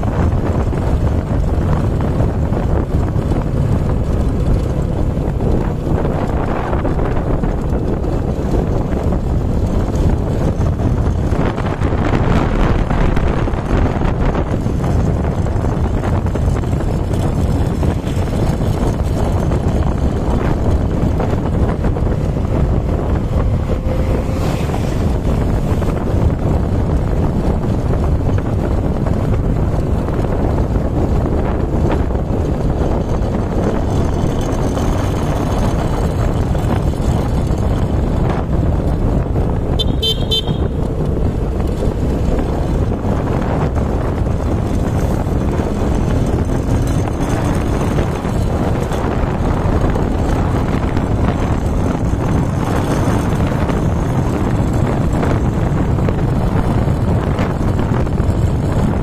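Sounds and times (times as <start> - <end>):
vehicle engine running: 0.0 - 59.0
wind rushing over microphone: 0.0 - 59.0
short horn beep: 39.8 - 40.7.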